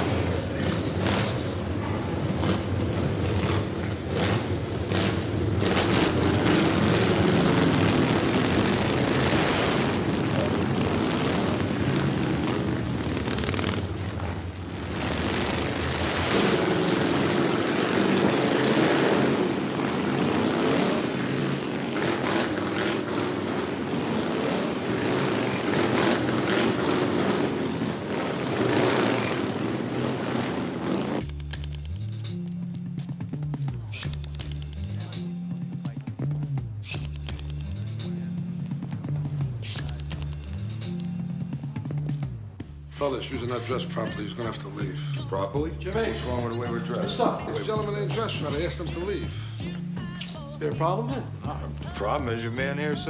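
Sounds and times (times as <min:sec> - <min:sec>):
motorcycle engines rumbling: 0:00.0 - 0:53.0.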